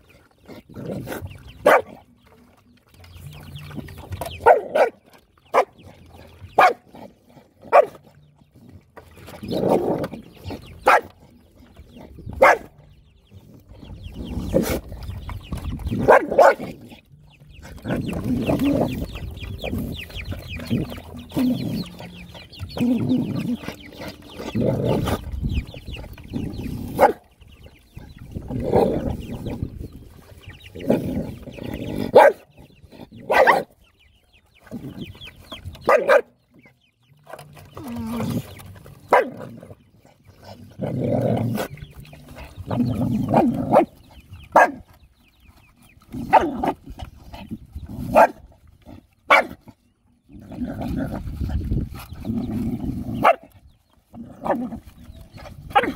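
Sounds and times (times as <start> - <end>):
dogs vocalizing: 0.0 - 55.9
dogs barking sharply: 10.8 - 11.1, 12.4 - 12.7, 32.1 - 32.4, 33.2 - 33.7, 35.8 - 36.3, 44.5 - 44.8, 49.3 - 49.6.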